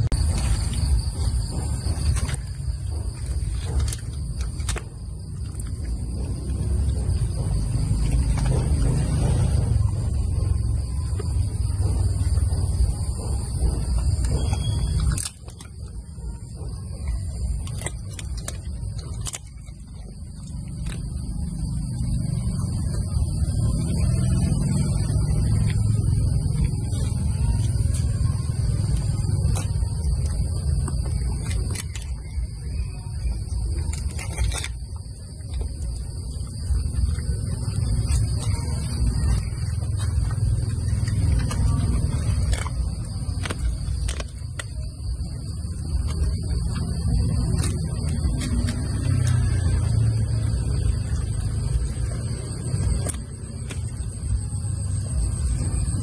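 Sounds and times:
low rumbling background: 0.0s - 56.0s
dog crunching food: 13.4s - 16.0s, 16.6s - 55.9s.

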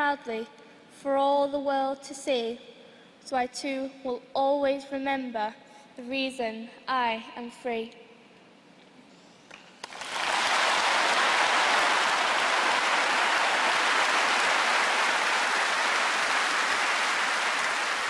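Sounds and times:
audience applause: 9.8s - 18.0s.

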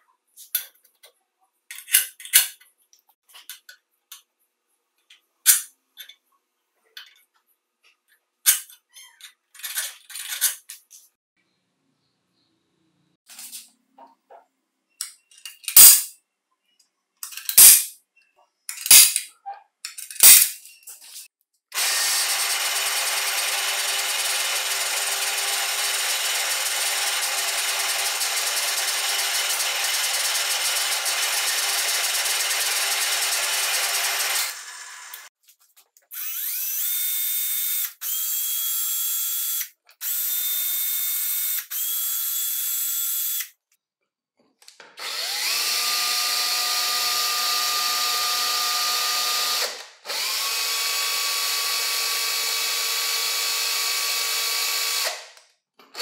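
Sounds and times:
cordless drill whining: 21.8s - 35.3s, 36.1s - 43.5s, 45.0s - 55.2s
drill press drilling: 21.8s - 35.3s, 36.2s - 43.4s, 45.0s - 55.3s.

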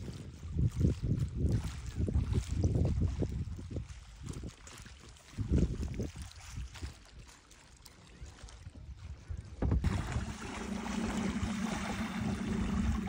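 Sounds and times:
water lapping around kayak: 0.0s - 13.0s
wind on microphone: 0.0s - 13.0s
low steady hum: 9.6s - 13.0s.

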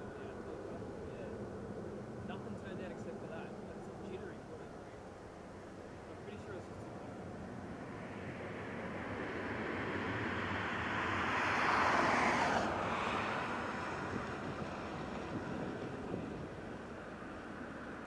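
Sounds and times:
jet engine rushing: 5.6s - 18.0s.

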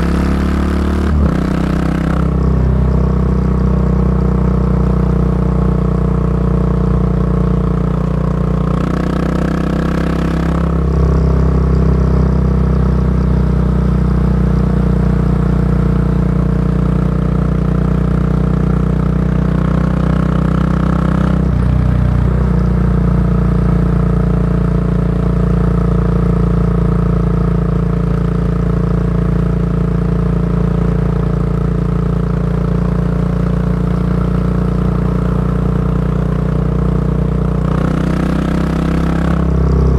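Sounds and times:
motorcycle engine exhaust note: 0.0s - 39.9s.

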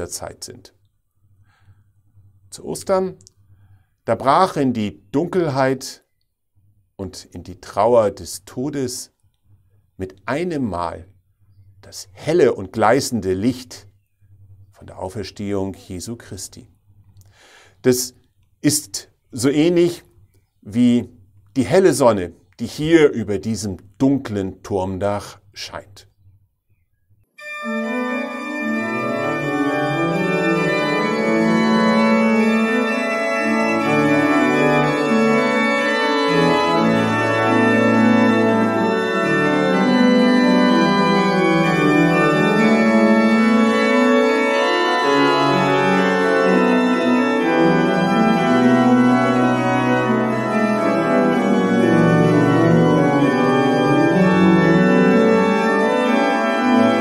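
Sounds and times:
organ playing a hymn: 27.4s - 57.0s.

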